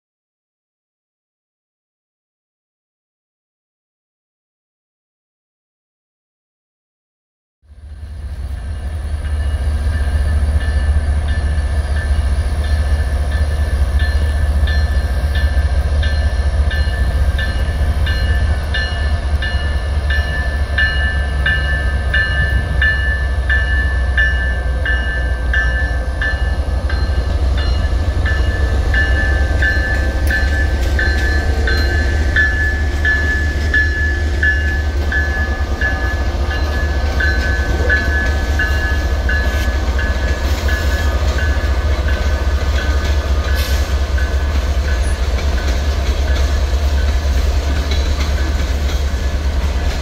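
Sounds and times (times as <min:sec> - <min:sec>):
freight train rumbling past: 0:07.6 - 0:50.0
bell ringing: 0:12.0 - 0:43.6.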